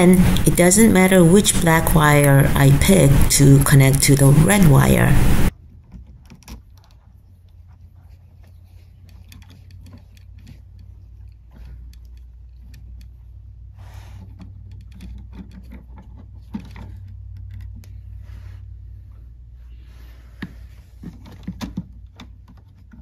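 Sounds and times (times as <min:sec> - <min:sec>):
steady low hum: 0:00.0 - 0:05.5
wires clicking and scraping: 0:08.2 - 0:13.2.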